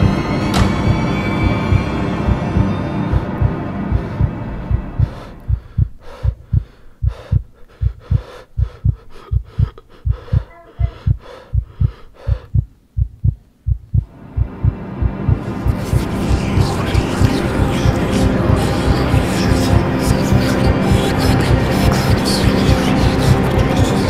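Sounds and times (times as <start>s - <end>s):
music: 0.0s - 6.3s, 14.0s - 24.0s
heartbeat thumps: 0.0s - 24.0s.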